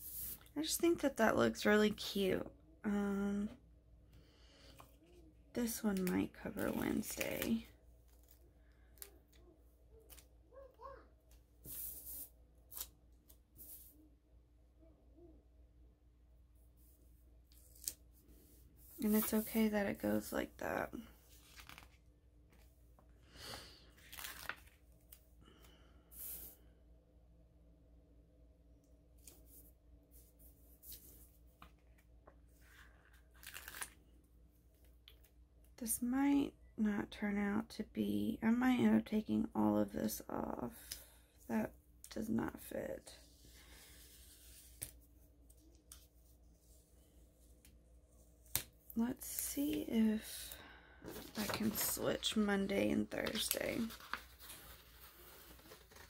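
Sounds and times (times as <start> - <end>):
soft brushing sounds: 0.0 - 0.6, 11.6 - 12.4, 13.3 - 14.1, 16.6 - 20.3, 43.2 - 48.4, 51.0 - 56.0
paper rustling: 21.2 - 22.8, 24.0 - 25.2, 30.2 - 34.0, 51.0 - 56.0.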